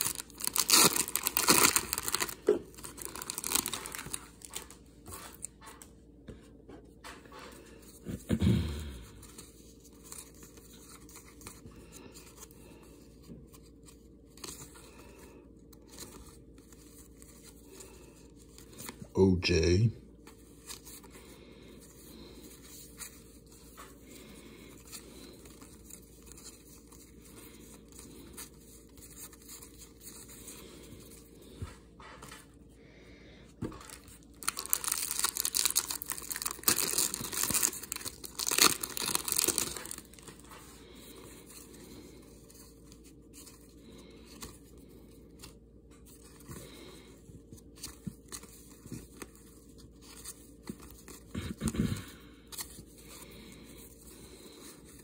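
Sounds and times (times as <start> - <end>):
foil wrapper tearing and crinkling: 0.0 - 4.8, 33.8 - 40.5
handling of cards: 0.0 - 6.2, 33.5 - 55.0.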